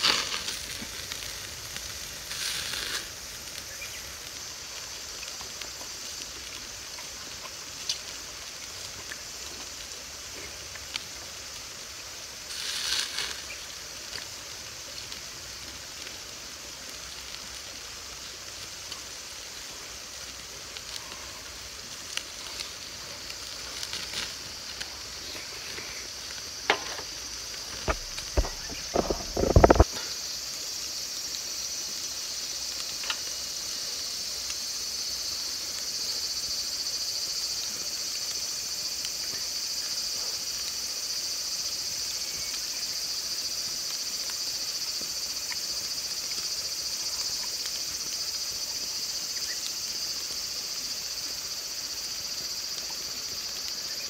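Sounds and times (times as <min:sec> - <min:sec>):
meat sizzling on a grill: 0:00.0 - 0:54.0
small crackles: 0:00.0 - 0:54.0
high-pitched insect drone: 0:23.6 - 0:54.0.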